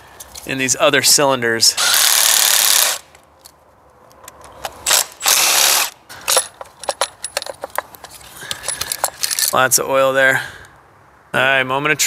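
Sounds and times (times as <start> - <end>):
electric ratchet spinning: 1.8 - 3.1, 4.9 - 6.0
clicks and rattles of handling: 3.4 - 4.8, 6.1 - 9.6.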